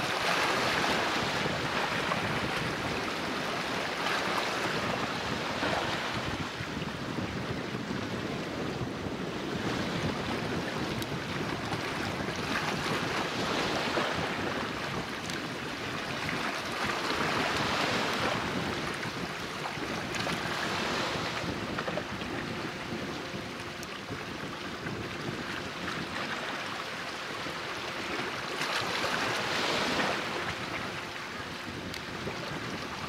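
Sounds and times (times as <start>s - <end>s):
harbour water noise: 0.0s - 33.0s
wind buffeting microphone: 0.0s - 33.0s
faint steady hum: 13.2s - 33.0s.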